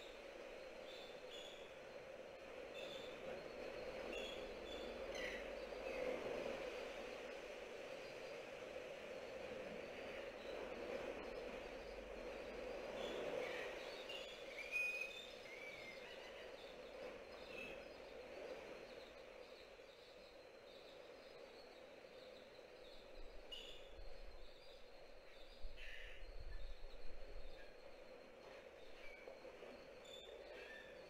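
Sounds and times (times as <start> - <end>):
wind noise: 0.0 - 14.5, 22.6 - 31.0.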